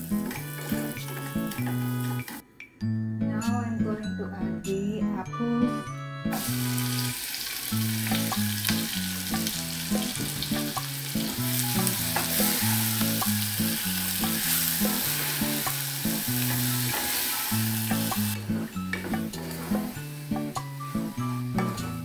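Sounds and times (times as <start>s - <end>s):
apple slices sizzling in butter: 0.0s - 2.4s, 6.3s - 22.0s
background music with bass line: 7.8s - 22.0s.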